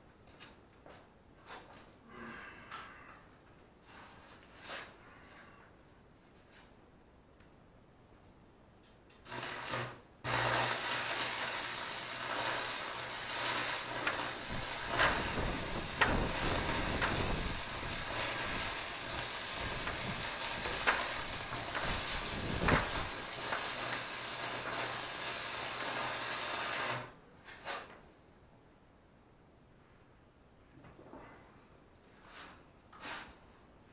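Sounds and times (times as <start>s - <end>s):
welding arc crackling: 9.2s - 27.2s.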